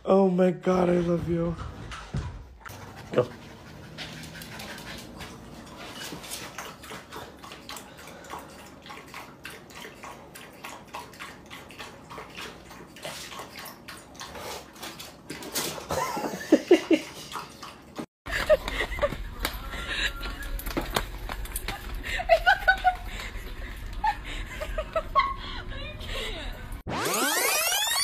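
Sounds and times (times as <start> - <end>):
dog lapping water: 2.7 - 16.0, 16.7 - 18.1.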